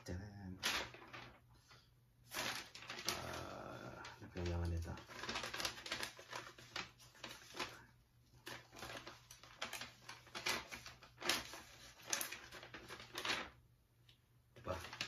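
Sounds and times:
paper envelope tearing: 0.6 - 1.4, 2.3 - 7.8, 8.4 - 13.5, 14.6 - 15.0.

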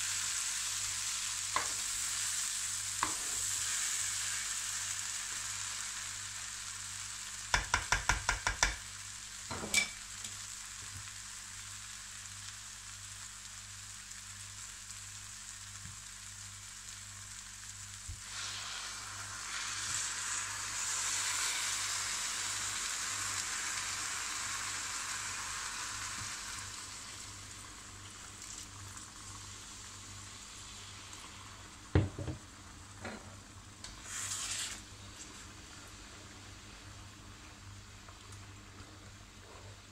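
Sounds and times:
vegetables sizzling in a pan: 0.0 - 39.9
spatula tapping against pan: 7.5 - 8.8
loud hiss: 18.2 - 25.3
water poured into hot pan: 18.2 - 29.9.

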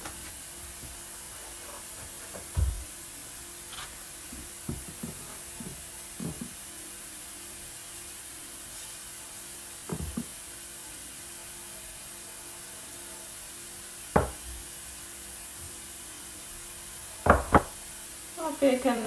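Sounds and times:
hands thumping pastry on countertop: 14.2 - 14.5, 17.2 - 17.8.

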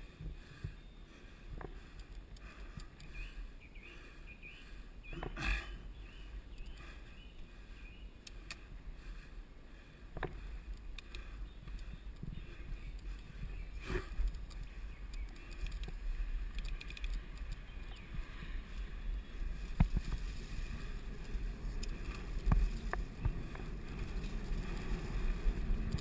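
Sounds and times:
wind buffeting microphone: 5.8 - 26.0
bike rattling over ground: 19.4 - 26.0.

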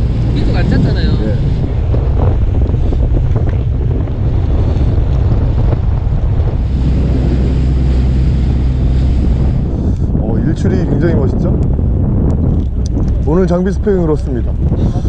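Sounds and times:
boat engine droning: 0.0 - 15.0
sea washing around hull: 0.0 - 15.0
wind buffeting microphone: 0.0 - 15.0.

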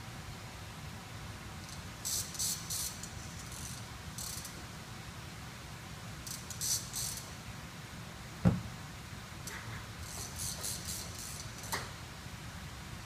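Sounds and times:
sharp thump: 8.4 - 8.7.

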